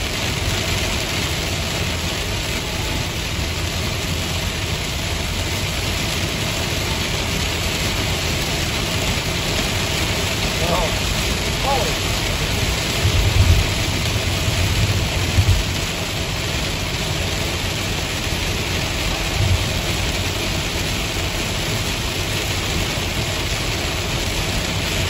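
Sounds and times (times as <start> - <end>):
heavy rain on car roof: 0.0 - 25.0
tyre and road noise: 0.0 - 25.0
low thumps: 12.8 - 15.9.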